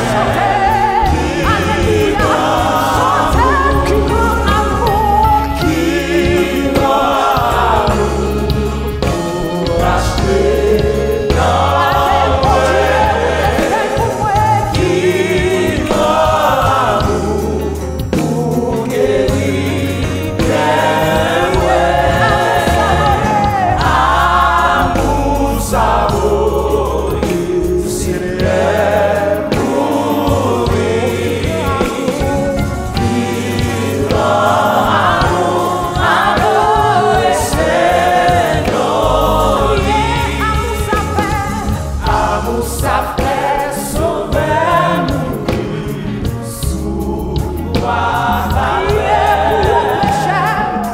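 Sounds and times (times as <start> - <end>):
backing singers: 0.0 - 50.9
bass accompaniment: 0.0 - 50.9
woman singing into microphone: 0.6 - 5.7, 49.6 - 50.9.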